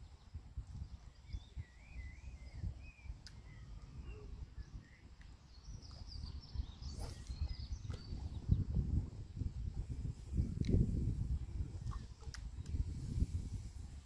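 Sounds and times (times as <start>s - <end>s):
birds singing: 0.0s - 9.0s.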